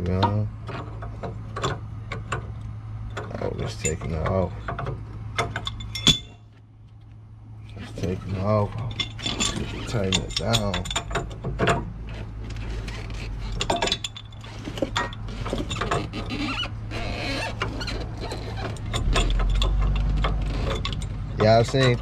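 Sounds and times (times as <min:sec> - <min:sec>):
low hum: 0:00.0 - 0:21.9.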